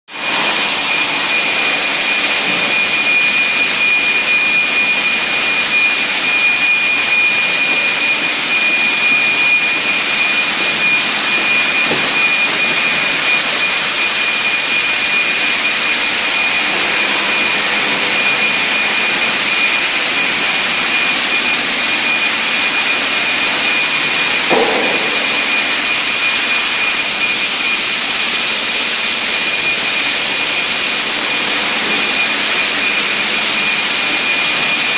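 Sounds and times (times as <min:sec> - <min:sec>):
high-pitched machine whine: 0:00.1 - 0:34.9
machine clank: 0:24.5 - 0:26.8.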